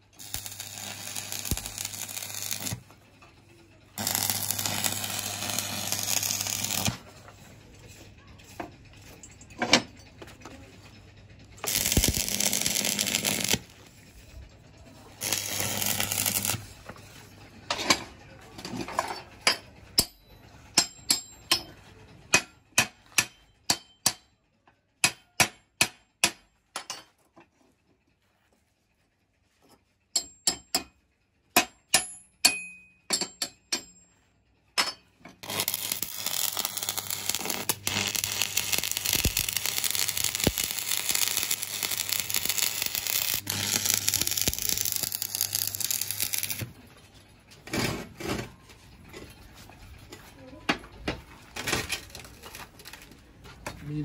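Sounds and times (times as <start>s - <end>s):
welding arc crackle: 0.1s - 2.9s, 4.0s - 7.0s, 11.6s - 13.8s, 15.2s - 16.8s, 35.4s - 46.7s
hammer tapping on metal: 22.3s - 24.3s, 30.2s - 31.0s.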